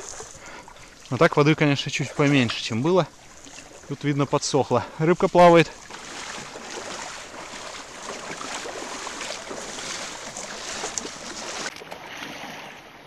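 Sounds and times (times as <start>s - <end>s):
water splashing as people wade: 0.0s - 13.0s.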